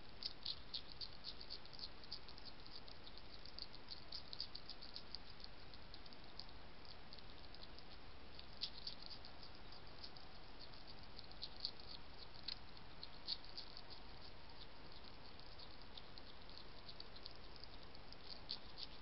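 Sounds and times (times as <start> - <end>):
hedgehog chewing and crunching: 0.0 - 19.0.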